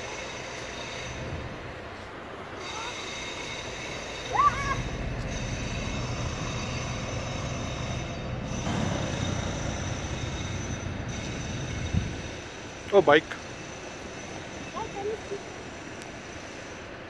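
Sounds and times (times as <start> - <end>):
city street traffic rumble: 0.0 - 17.0
short rising squeal: 2.6 - 14.8.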